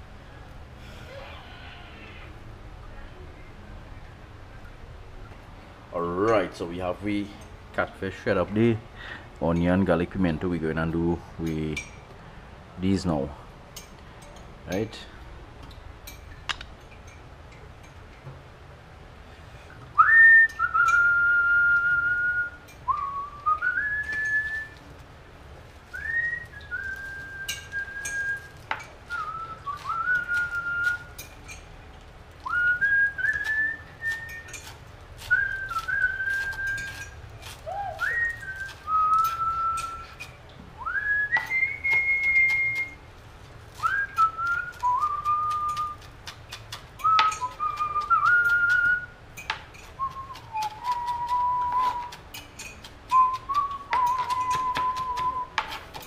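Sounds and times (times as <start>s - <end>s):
person whistling a slow tune: 20.0s - 24.8s, 25.9s - 31.3s, 32.4s - 34.6s, 35.3s - 43.0s, 43.8s - 46.1s, 47.0s - 49.2s, 50.0s - 52.2s, 53.1s - 55.6s.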